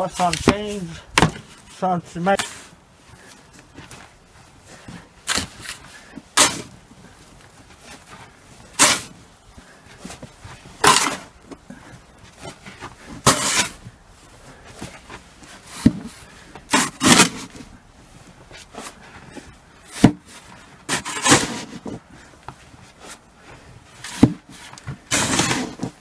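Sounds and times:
plastic shovel scraping snow: 0.0s - 6.9s, 7.7s - 9.2s, 10.0s - 11.4s, 12.3s - 17.8s, 19.9s - 22.0s, 23.9s - 26.0s.

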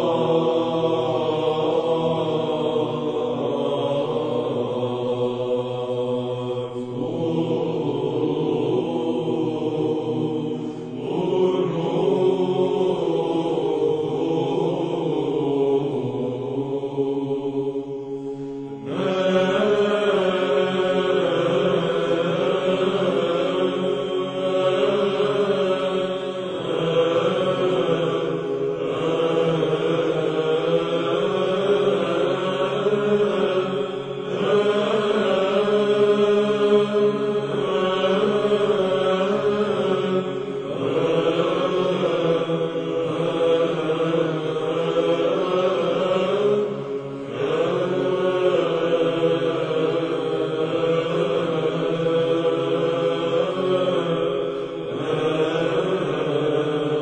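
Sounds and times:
chant singing: 0.0s - 57.0s
held drone: 0.0s - 57.0s
singer breathing: 10.6s - 11.0s, 18.2s - 18.8s.

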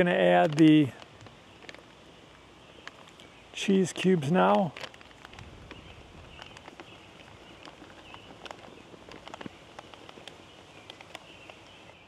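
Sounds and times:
faint steady hiss: 0.0s - 12.0s
light clicks and taps: 0.3s - 1.8s, 6.4s - 11.7s.

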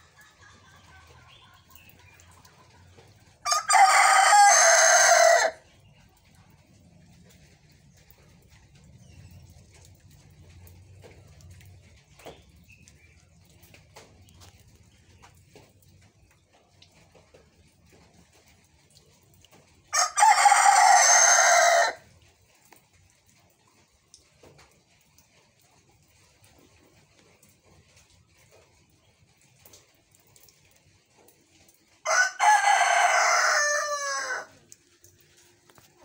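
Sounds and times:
rooster crowing hoarsely: 3.4s - 5.6s, 19.9s - 22.0s, 32.1s - 34.6s.

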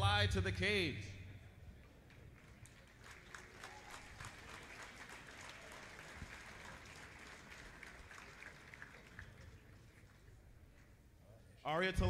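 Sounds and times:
audience applauding: 2.0s - 10.4s.

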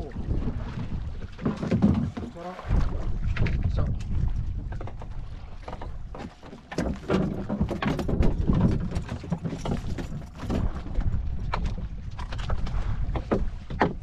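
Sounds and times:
knocks and clatter on boat: 0.0s - 14.0s
low rumble: 2.6s - 5.6s.

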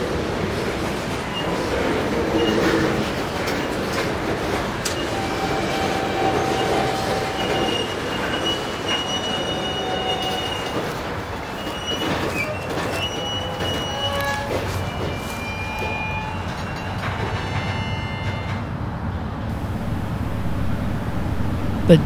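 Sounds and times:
steel wheels rumbling on rail: 0.0s - 22.0s
high-pitched wheel squeal: 4.9s - 10.8s, 11.4s - 18.5s.

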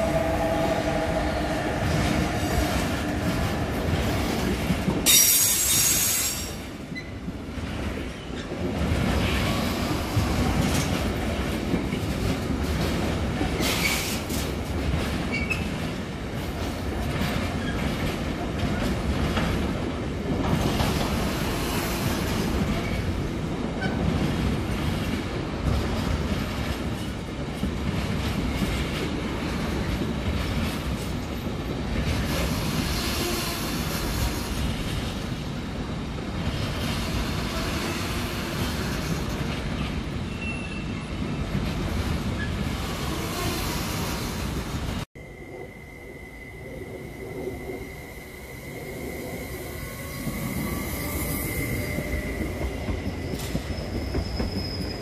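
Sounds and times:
train wheels rumbling on rail: 0.0s - 55.0s
wheel squeal: 49.8s - 55.0s.

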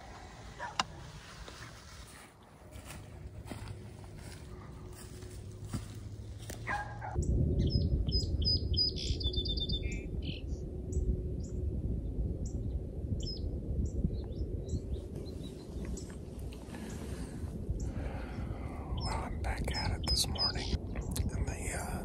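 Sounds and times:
songbirds chirping: 0.0s - 22.0s
steady low rumble: 0.0s - 22.0s.

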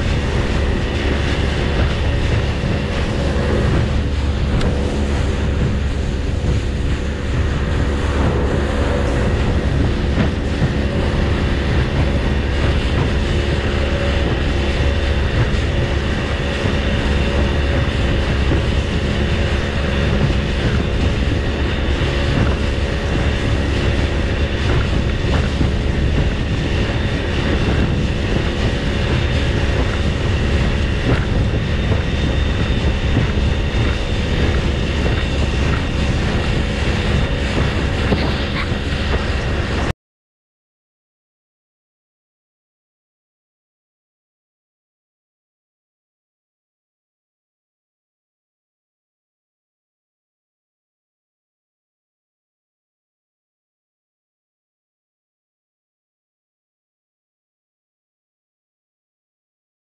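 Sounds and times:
boat engine running: 0.0s - 39.9s
water rushing past hull: 0.0s - 39.9s.

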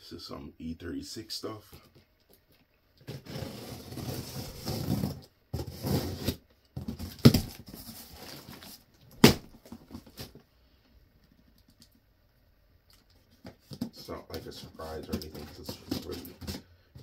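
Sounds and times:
cardboard packaging rustling: 3.0s - 10.5s.

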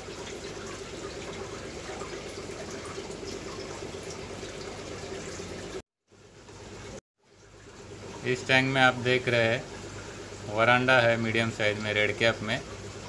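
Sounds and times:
aquarium water bubbling: 0.0s - 13.0s
faint steady hum: 0.0s - 13.0s.

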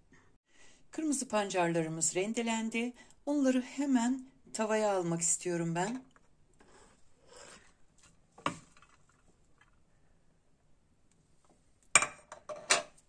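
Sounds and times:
grated vegetable sliding into pan: 6.6s - 7.8s.

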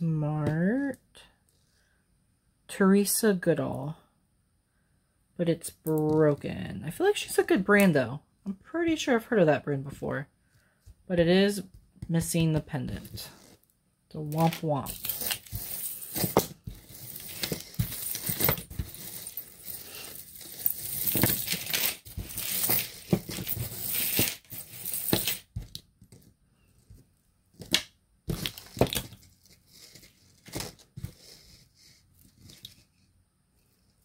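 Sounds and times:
jewelry clinking and rattling: 14.3s - 26.3s.

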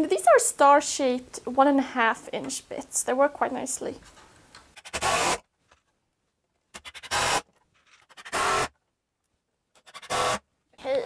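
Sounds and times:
cordless drill driving screws: 4.8s - 5.4s, 6.9s - 7.5s, 8.1s - 8.7s, 9.8s - 10.4s.

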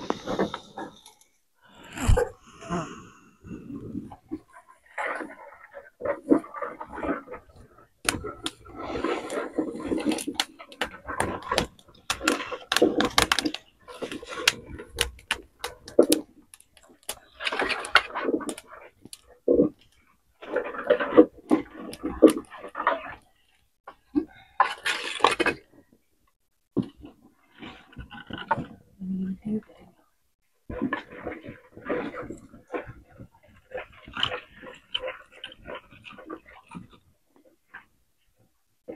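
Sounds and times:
wood fire crackling: 7.5s - 20.6s.

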